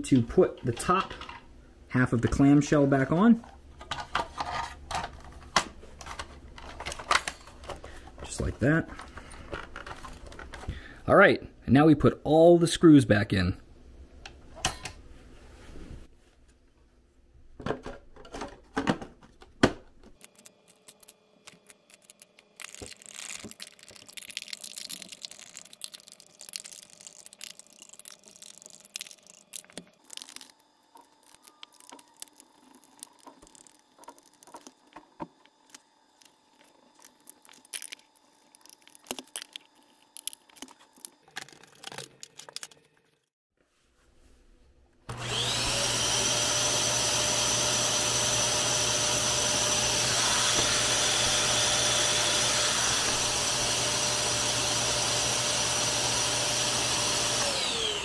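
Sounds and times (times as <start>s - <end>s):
plastic parts clicking and rattling: 3.8s - 8.3s, 8.9s - 10.8s, 20.2s - 43.3s.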